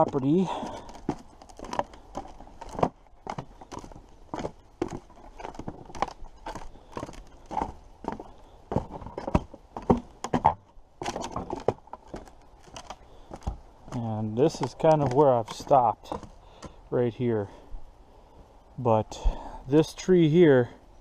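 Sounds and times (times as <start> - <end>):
footsteps on wooden boardwalk: 0.0 - 16.8.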